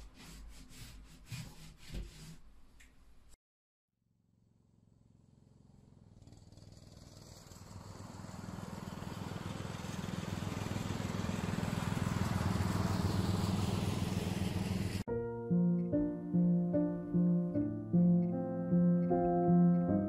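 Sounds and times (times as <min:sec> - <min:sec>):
lawn mower engine running: 0:05.0 - 0:15.0.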